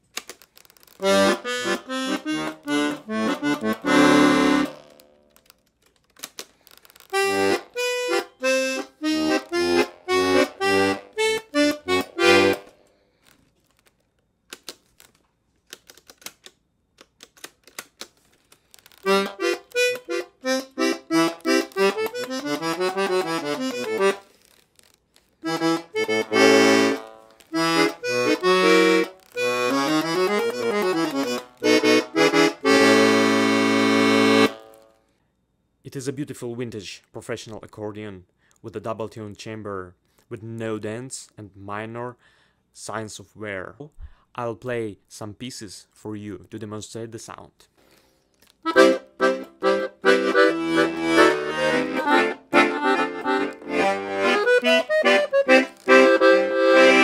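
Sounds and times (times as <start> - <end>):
accordion bass notes and chords: 1.0 - 5.2, 7.1 - 12.8, 19.0 - 24.3, 25.4 - 35.0, 48.6 - 57.0.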